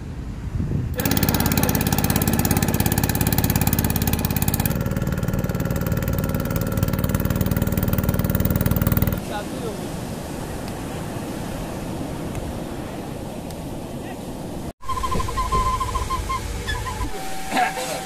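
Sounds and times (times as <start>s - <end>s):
engine throbbing: 0.9s - 9.2s.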